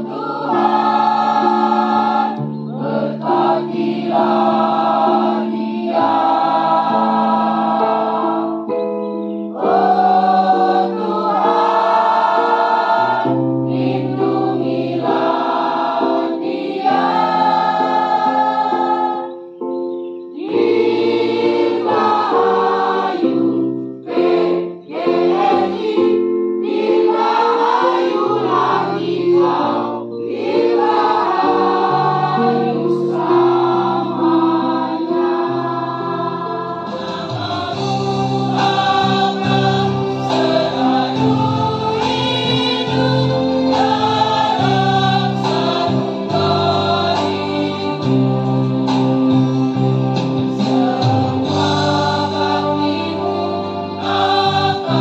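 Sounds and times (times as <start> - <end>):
mixed choir singing: 0.0 - 19.5, 20.3 - 55.0.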